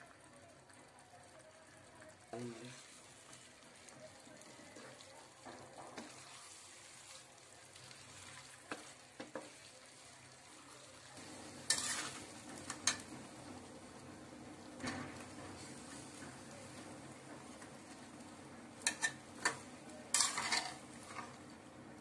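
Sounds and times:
food sizzling in frying pan: 0.0s - 22.0s
wooden spatula scraping pan: 11.6s - 13.1s, 18.8s - 21.5s.

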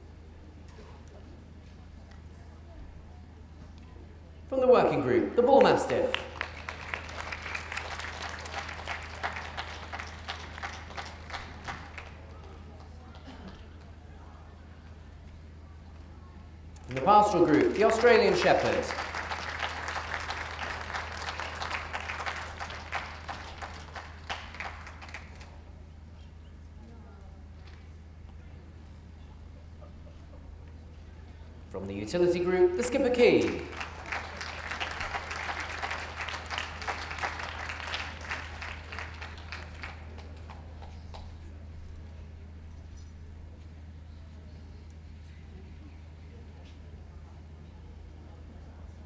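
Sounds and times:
steady low hum: 0.0s - 49.0s
audience applause: 5.6s - 13.9s, 16.9s - 25.6s, 32.8s - 41.2s.

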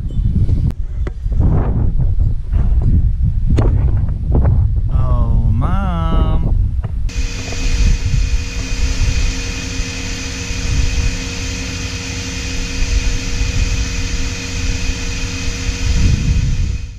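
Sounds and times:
electric pressure washer spraying: 7.1s - 16.9s.

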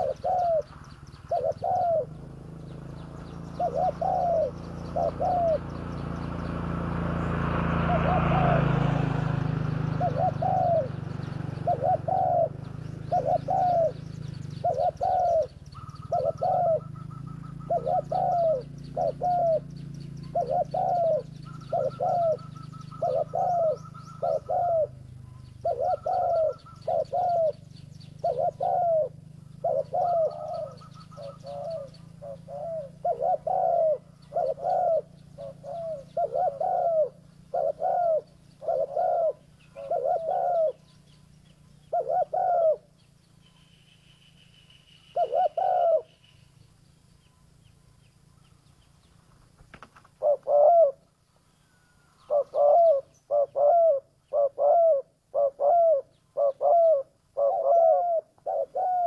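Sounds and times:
dove cooing: 0.0s - 43.0s, 45.1s - 46.2s, 49.4s - 59.0s.

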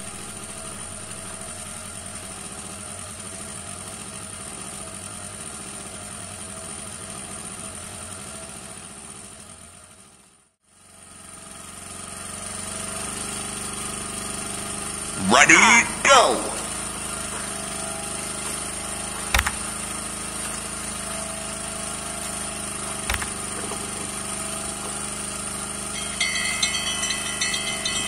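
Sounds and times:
boat engine droning: 16.6s - 28.0s.

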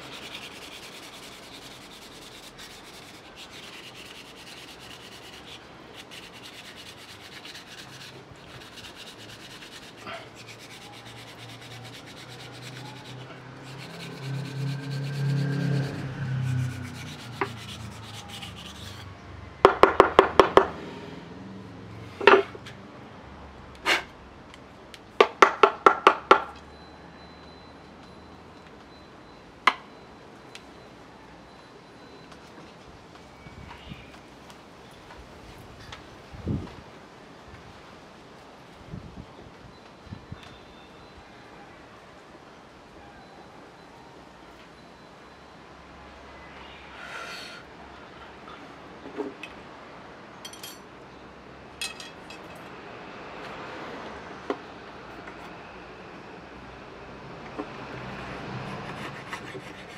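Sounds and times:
rubbing strokes on bamboo rod: 0.0s - 19.1s, 58.6s - 59.9s.

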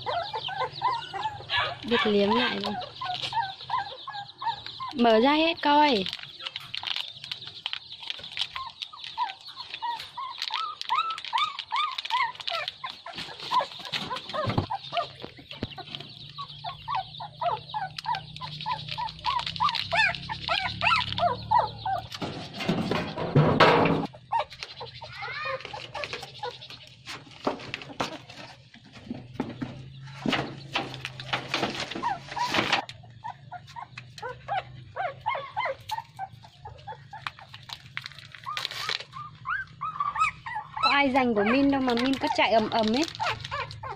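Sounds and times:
high squeaky animal calls: 0.0s - 23.3s, 24.0s - 27.0s, 31.0s - 43.9s
plastic packet crinkling: 1.8s - 3.7s, 4.6s - 22.7s, 35.8s - 39.9s, 41.5s - 43.9s
chicken clucking: 7.6s - 37.8s.

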